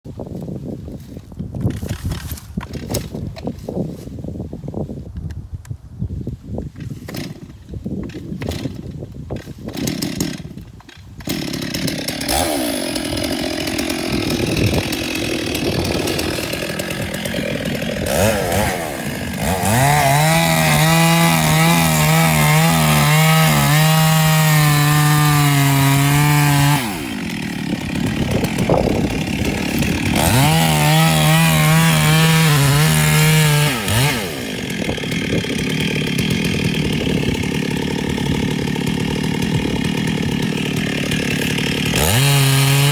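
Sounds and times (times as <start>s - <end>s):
chainsaw cutting wood at full throttle: 1.1s - 3.8s, 6.8s - 42.9s
chainsaw idling: 9.6s - 42.9s.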